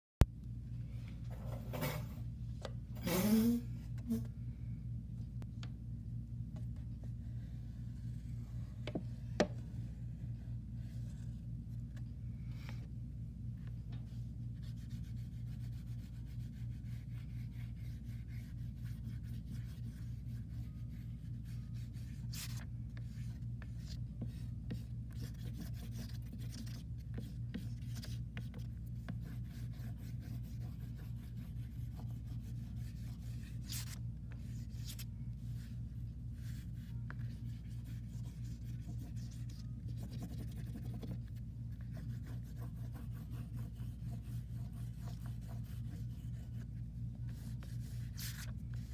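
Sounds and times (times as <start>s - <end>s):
steady low hum: 0.2s - 48.9s
oil pastel scratching on paper: 14.1s - 48.9s.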